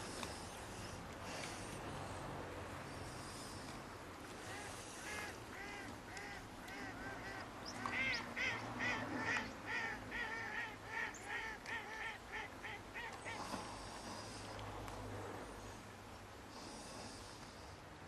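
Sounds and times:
geese honking: 0:05.0 - 0:13.2.

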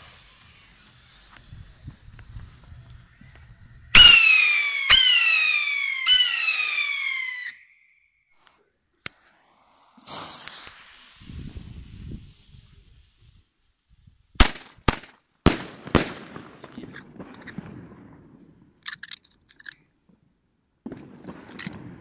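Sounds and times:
firework launch hiss: 0:00.0 - 0:03.2, 0:04.0 - 0:07.5, 0:09.1 - 0:14.7
firework bangs echoing: 0:04.0 - 0:07.5, 0:14.4 - 0:18.7, 0:20.8 - 0:22.0
faint crackles: 0:08.4 - 0:14.3.

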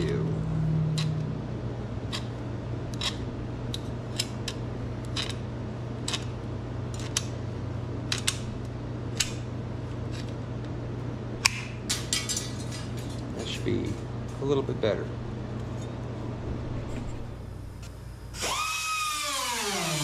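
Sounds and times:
steady low hum: 0:00.0 - 0:19.7
tin snips cutting metal: 0:02.9 - 0:03.2.

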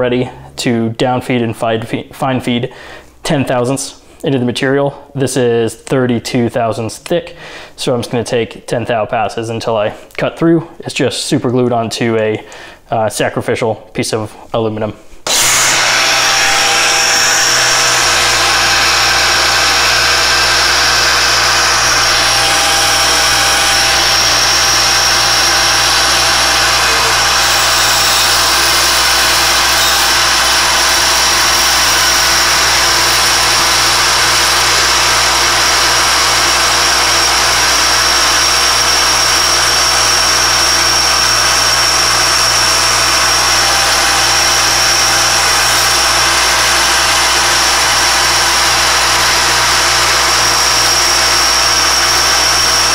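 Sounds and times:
milling machine spindle whine: 0:15.3 - 0:52.9.

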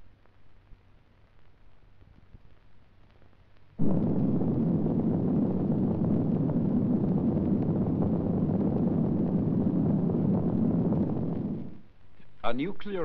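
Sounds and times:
loud low rumble: 0:03.8 - 0:11.8
explosion blast: 0:03.8 - 0:11.9.

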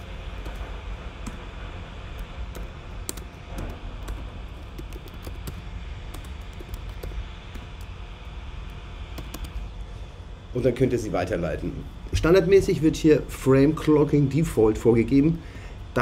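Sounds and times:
keyboard typing: 0:00.0 - 0:01.4, 0:02.2 - 0:07.9, 0:09.2 - 0:09.6
low background hum: 0:00.0 - 0:16.0.

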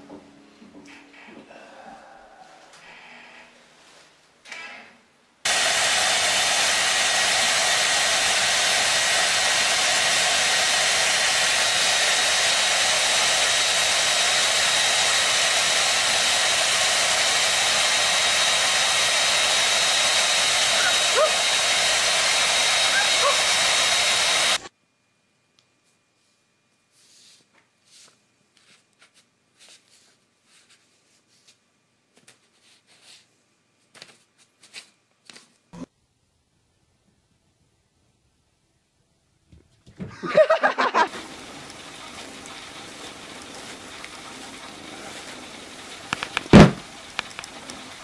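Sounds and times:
hair dryer running: 0:05.5 - 0:24.7, 0:40.2 - 0:48.0.

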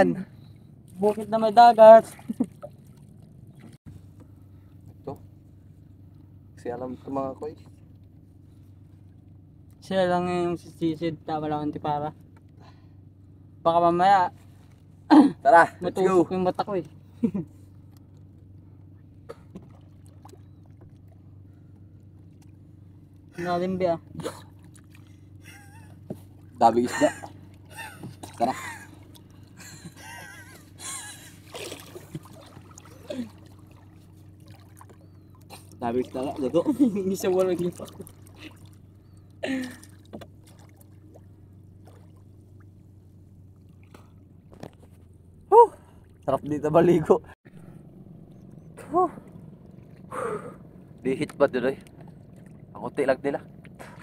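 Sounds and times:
boat engine humming: 0:00.0 - 0:54.0
water sounds: 0:00.0 - 0:54.0
swimmers splashing: 0:24.2 - 0:38.9.

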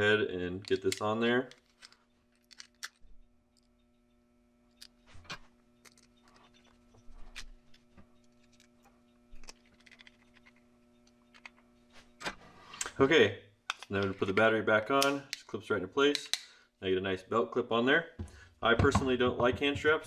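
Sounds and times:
faint steady hum: 0:00.0 - 0:20.0
screwdriver clicks and scrapes: 0:05.8 - 0:08.8, 0:09.4 - 0:11.6.

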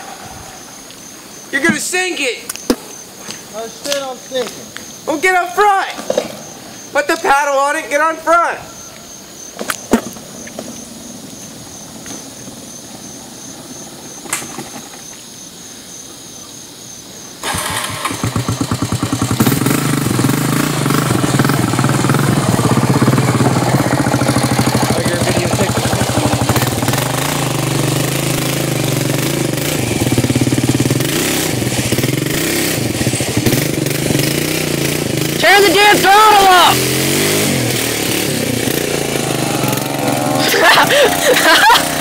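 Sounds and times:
outboard motor running: 0:17.4 - 0:42.0.

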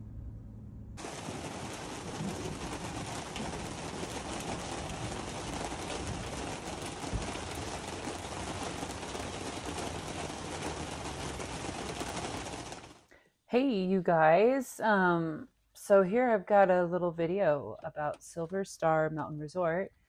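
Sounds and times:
steady rain falling: 0:01.0 - 0:13.1.

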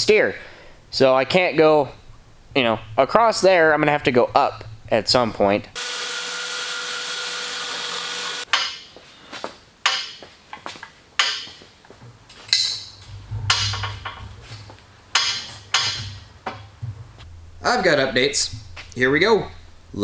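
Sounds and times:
band saw cutting steel: 0:05.8 - 0:08.8
metallic clanks with ringing: 0:12.5 - 0:14.4.

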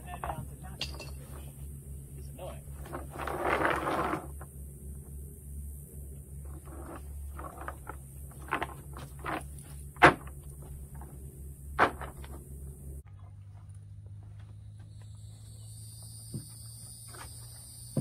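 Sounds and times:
knocks on wooden boards: 0:09.9 - 0:11.1
footsteps on wooden boards: 0:16.1 - 0:18.0.

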